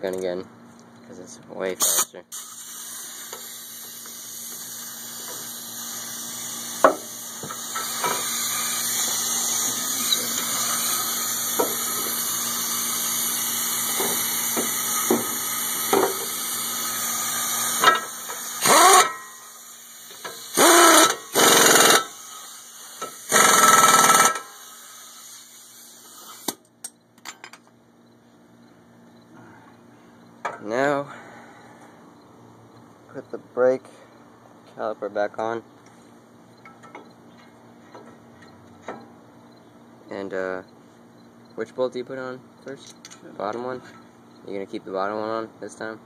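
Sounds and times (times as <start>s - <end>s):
impact wrench bursts: 1.8s - 26.6s.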